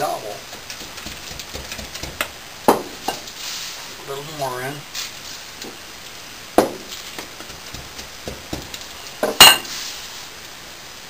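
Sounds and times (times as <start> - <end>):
wooden dowel knocking: 0.5 - 2.8, 6.6 - 9.4
sand rustling: 3.2 - 5.9, 9.6 - 10.4.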